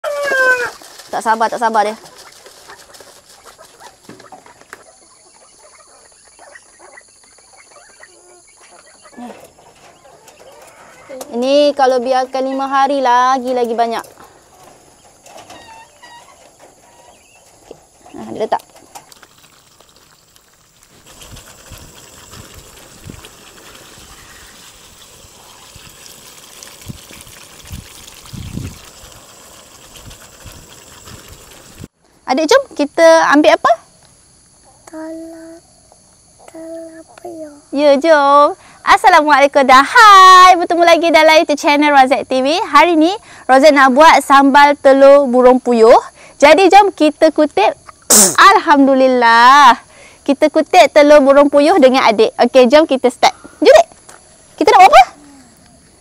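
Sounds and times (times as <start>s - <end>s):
grains pattering into plastic feeder: 0.0s - 4.8s
birds pecking and scratching: 0.0s - 31.9s
quail chirping softly: 2.0s - 11.2s, 14.5s - 18.2s
sauce bubbling and sizzling: 19.0s - 32.0s.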